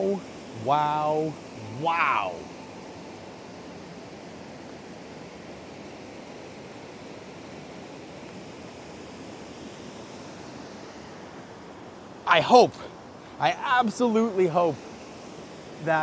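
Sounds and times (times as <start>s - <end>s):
waterfall rushing: 0.0s - 5.6s, 12.2s - 16.0s.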